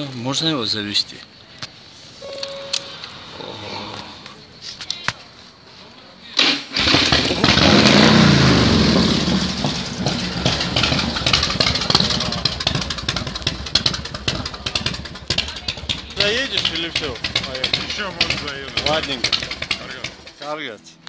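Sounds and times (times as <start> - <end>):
motorcycle engine starting and idling: 6.4 - 20.6.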